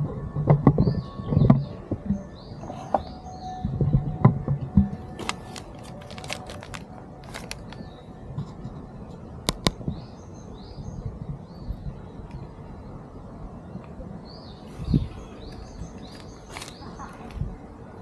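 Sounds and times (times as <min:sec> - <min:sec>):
small birds chirping: 0:14.2 - 0:17.6.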